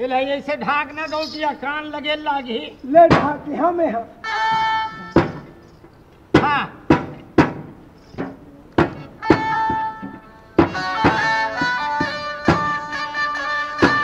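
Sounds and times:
sustained folk melody: 0:04.0 - 0:14.0
sharp drum strokes: 0:04.3 - 0:05.6, 0:06.3 - 0:13.1, 0:13.8 - 0:14.0.

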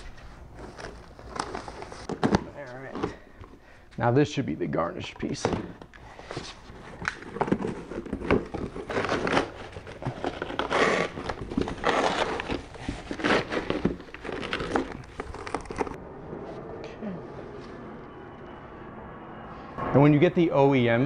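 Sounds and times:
cardboard and paper rustling: 0:00.0 - 0:03.6, 0:05.3 - 0:16.0
packing paper pulled open: 0:06.9 - 0:16.0.

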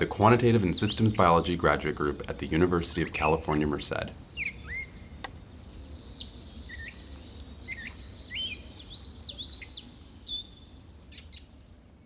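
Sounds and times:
bird chirping: 0:00.0 - 0:12.0
high insect trill: 0:00.0 - 0:12.0.

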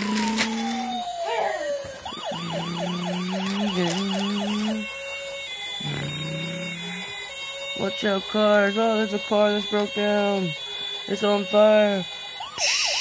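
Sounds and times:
steady low hum: 0:00.0 - 0:05.0, 0:05.8 - 0:07.6
toy siren wailing and yelping: 0:00.0 - 0:13.0.

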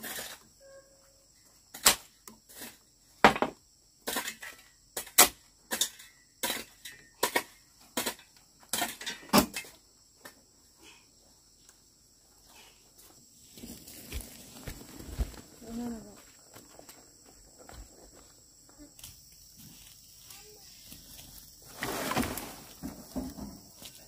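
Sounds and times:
shovel scraping dirt: 0:00.0 - 0:00.5, 0:01.7 - 0:02.9, 0:04.0 - 0:09.8, 0:21.0 - 0:23.3
high insect drone: 0:09.0 - 0:24.0.

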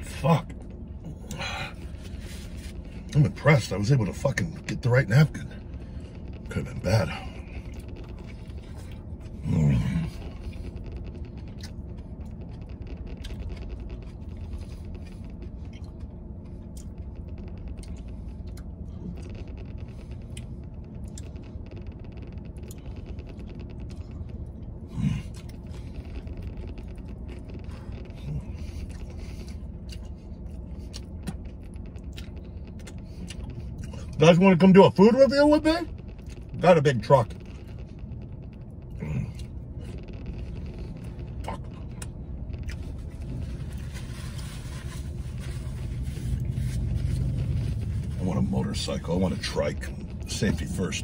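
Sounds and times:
steady low hum: 0:00.0 - 0:51.0
man chewing: 0:05.6 - 0:34.2, 0:35.9 - 0:36.6, 0:37.2 - 0:48.2.

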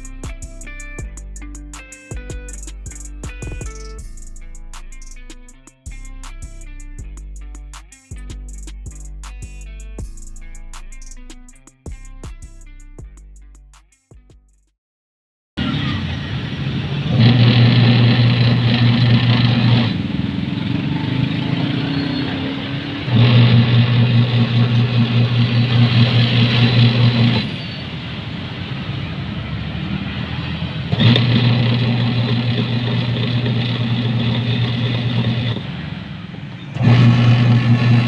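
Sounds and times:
washing machine motor humming: 0:17.0 - 0:20.0, 0:23.0 - 0:27.5, 0:30.9 - 0:35.7, 0:36.4 - 0:38.0.

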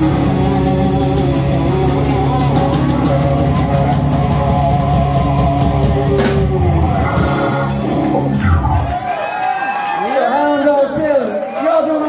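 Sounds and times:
bass guitar: 0:00.0 - 0:09.2
electric guitar: 0:00.0 - 0:09.2
drum kit: 0:00.0 - 0:09.4.

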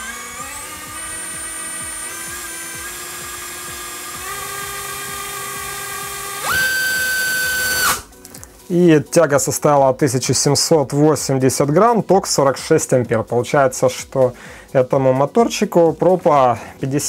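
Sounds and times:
electric motor whine: 0:00.0 - 0:08.1.

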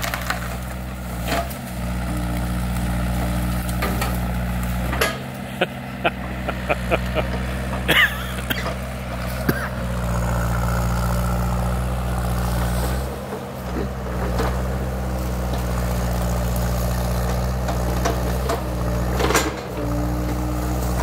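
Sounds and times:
wood cracking: 0:00.0 - 0:05.6
excavator diesel engine running: 0:00.0 - 0:21.0.

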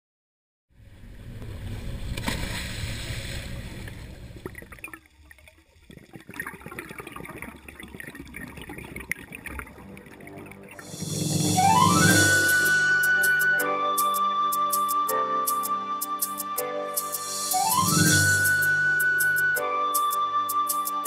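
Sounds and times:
boat engine rumble: 0:00.8 - 0:04.8
wind: 0:00.8 - 0:05.2
water noise: 0:00.8 - 0:14.2, 0:17.0 - 0:19.6
underwater bubbling: 0:03.0 - 0:11.5
underwater crackles and clicks: 0:03.6 - 0:10.8.

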